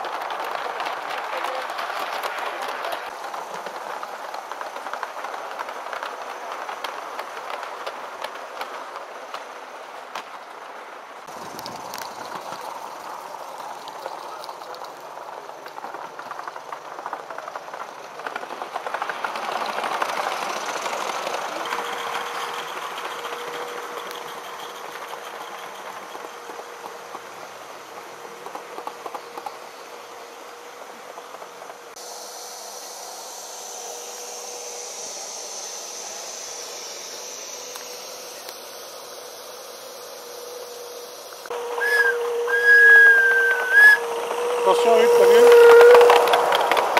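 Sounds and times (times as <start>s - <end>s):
model train wheels clicking: 0.0s - 46.9s.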